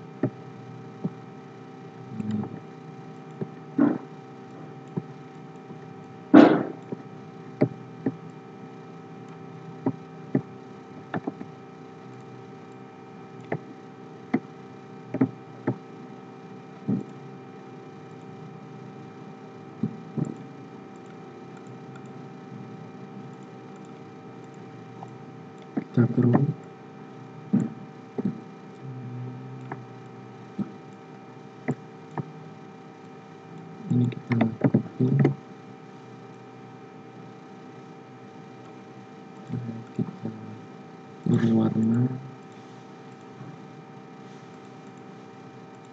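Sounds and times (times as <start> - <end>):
steady electrical hum: 0.0 - 45.9
computer mouse clicking: 9.2 - 12.8, 13.4 - 13.7, 14.3 - 15.8, 19.8 - 22.2, 23.2 - 26.8, 31.6 - 32.4, 44.3 - 45.9.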